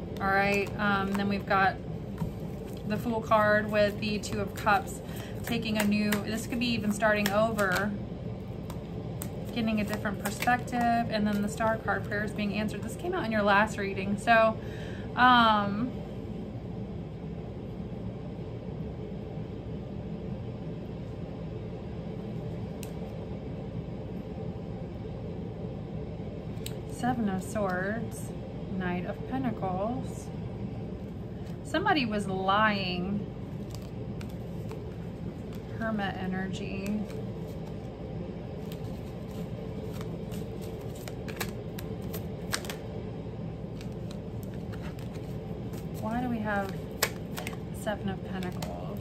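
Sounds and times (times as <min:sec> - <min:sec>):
low background rumble: 0:00.0 - 0:49.0
steady low background hum: 0:00.0 - 0:49.0
cards being shuffled: 0:00.1 - 0:08.0, 0:08.6 - 0:13.0, 0:33.6 - 0:35.8, 0:36.7 - 0:37.9, 0:38.6 - 0:42.9, 0:43.7 - 0:49.0.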